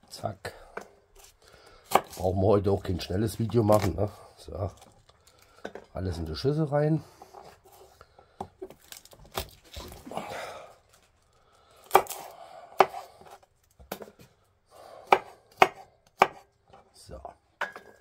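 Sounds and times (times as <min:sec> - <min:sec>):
knife chopping on cutting board: 0:12.8 - 0:13.1, 0:15.1 - 0:16.4.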